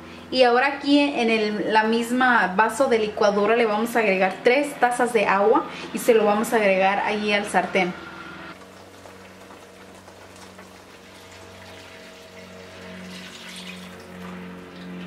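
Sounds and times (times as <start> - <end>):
water pouring into a pan: 8.6 - 15.0.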